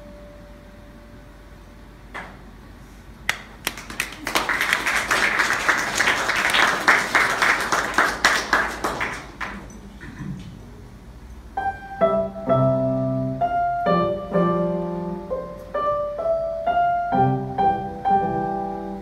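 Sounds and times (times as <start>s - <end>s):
small group applauding: 3.3s - 10.5s.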